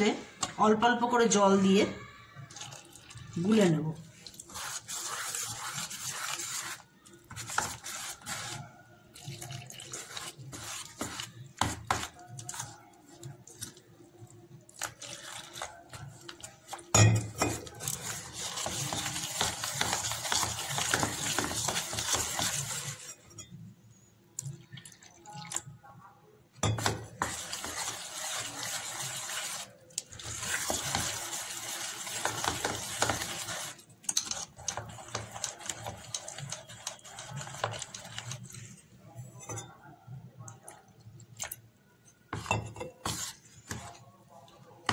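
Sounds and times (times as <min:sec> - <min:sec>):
splashy batter mixing: 0:02.4 - 0:23.2, 0:26.6 - 0:39.0, 0:42.4 - 0:44.9
spoon clinking against metal bowl: 0:16.8 - 0:17.9, 0:26.6 - 0:27.3.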